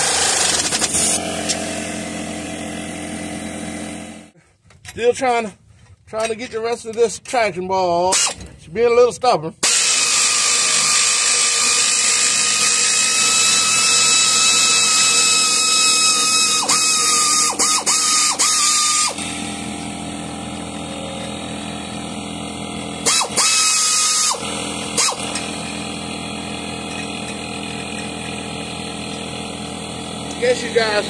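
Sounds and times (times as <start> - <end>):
pneumatic air ratchet running: 0.0 - 4.2, 8.1 - 8.5, 9.6 - 31.0.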